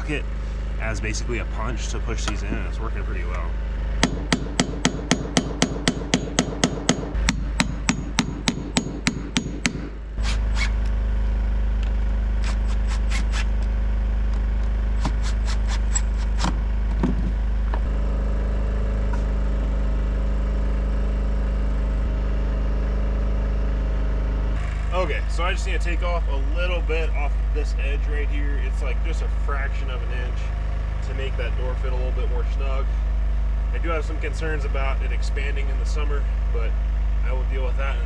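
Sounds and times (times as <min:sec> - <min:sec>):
low rumble: 0:00.0 - 0:12.5
hammer tapping metal: 0:04.0 - 0:09.9.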